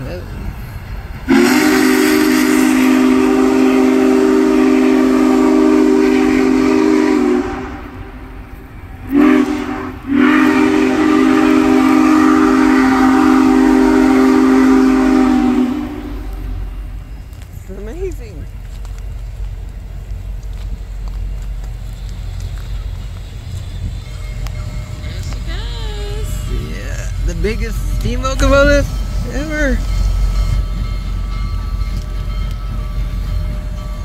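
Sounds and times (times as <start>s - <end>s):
steam hiss: 0.0s - 7.7s
steam locomotive whistle: 1.3s - 8.3s, 9.0s - 16.9s.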